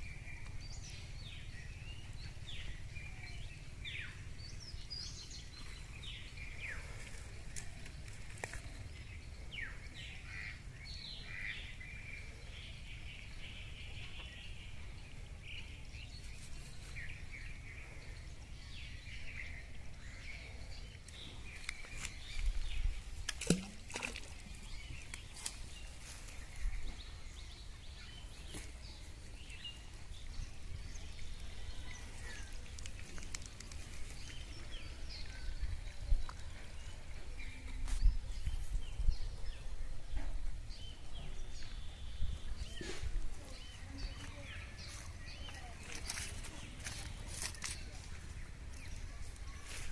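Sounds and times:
birds chirping: 0.0 - 49.9
wind rumble on microphone: 30.1 - 43.8.

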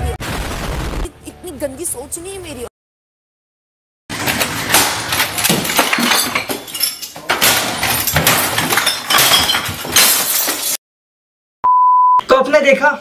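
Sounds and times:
debris clinking: 4.1 - 10.8
objects crashing and banging: 4.1 - 10.8
glass breaking: 4.2 - 10.8.

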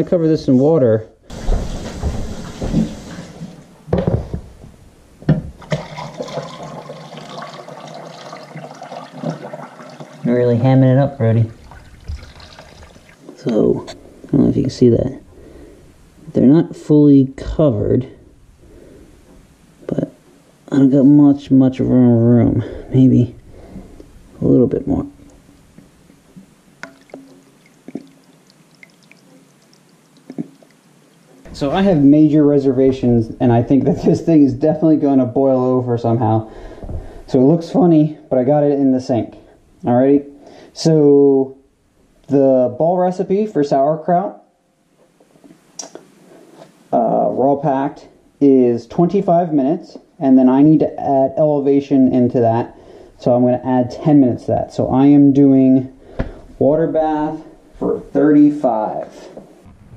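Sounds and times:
knocks: 3.9 - 5.8
water pouring into pot: 5.6 - 10.8, 11.5 - 13.3, 26.8 - 30.7.

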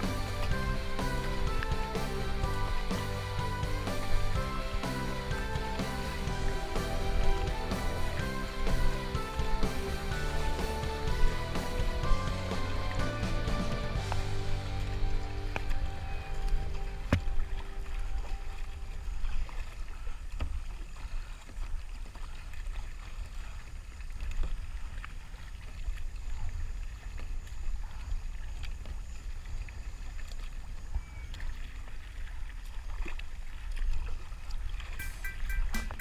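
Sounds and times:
water lapping and splashing: 0.0 - 36.0
small clicks and drips: 15.5 - 36.0.

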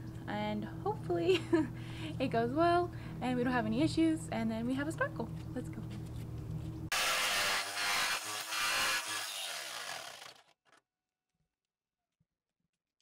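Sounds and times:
jigsaw cutting sheet metal: 6.9 - 10.8.

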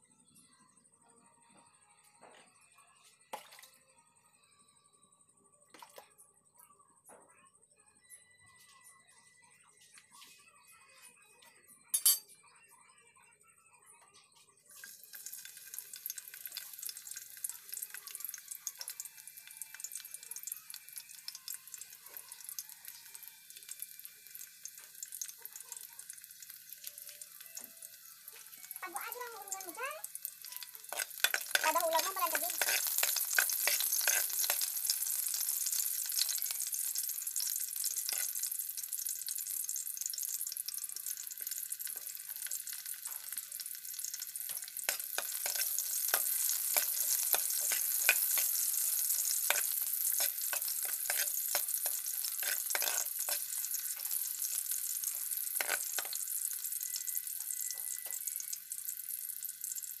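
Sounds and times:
garlic and onion sizzling: 14.7 - 60.0.

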